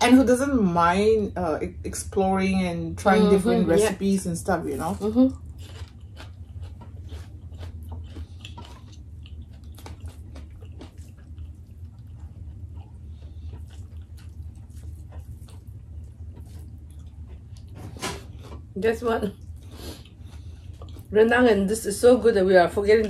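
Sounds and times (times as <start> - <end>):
steady low hum: 0.0 - 23.0
chewing and mouth smacks: 5.3 - 18.7, 19.3 - 21.2.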